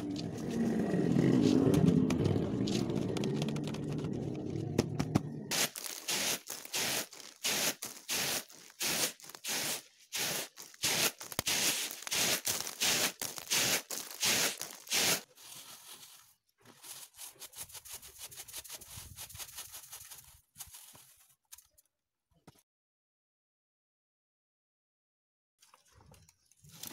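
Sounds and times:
grain winnowing swishes: 0:05.5 - 0:20.9
grain rustling on tray: 0:05.5 - 0:21.2.

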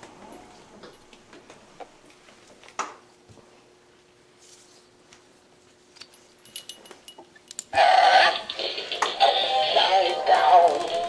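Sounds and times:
toy motor humming: 0:07.7 - 0:11.0.

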